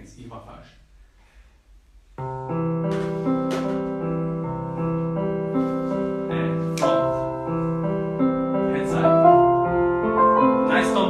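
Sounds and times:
piano music with held chords: 2.2s - 11.0s.

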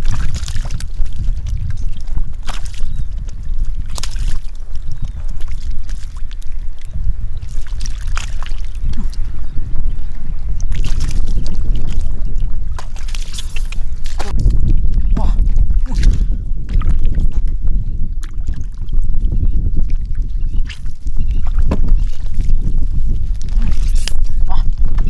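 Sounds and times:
wind rumble on microphone: 0.0s - 25.0s
hands splashing in water: 7.5s - 9.2s.

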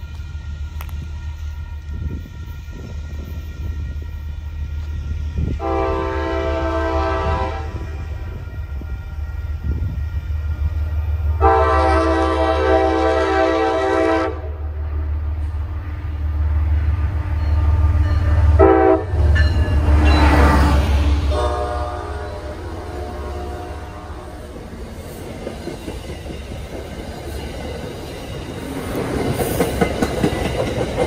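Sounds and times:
diesel locomotive engine rumbling: 0.0s - 31.0s
train wheel noise: 0.0s - 31.0s
locomotive horn blasts: 5.6s - 8.3s, 11.4s - 14.6s, 18.5s - 19.5s, 20.2s - 24.5s.

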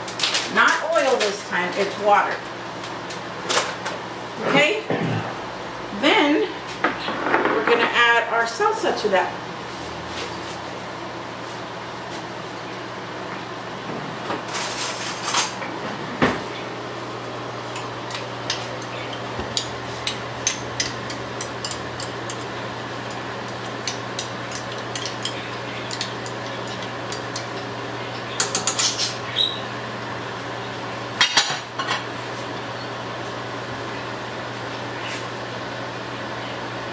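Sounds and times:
steady low hum: 1.5s - 36.9s
spoon clinking against cookware: 23.8s - 27.7s.

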